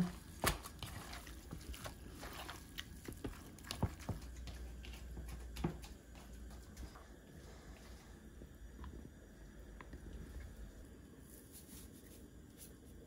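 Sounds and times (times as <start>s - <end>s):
hands squishing wet seaweed: 0.0s - 5.6s.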